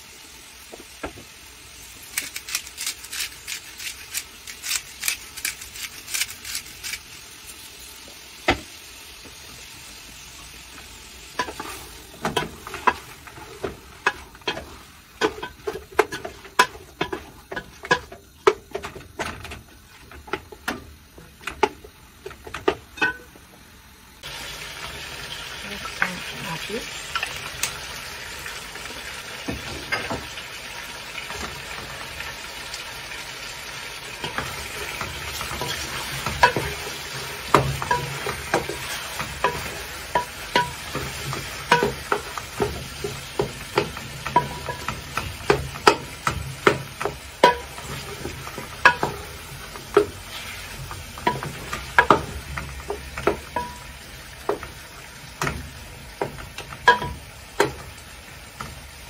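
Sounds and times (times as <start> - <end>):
food sizzling: 0.0 - 59.0
wooden spoon knocking metal pot: 34.2 - 50.2, 51.2 - 54.8, 55.4 - 57.9.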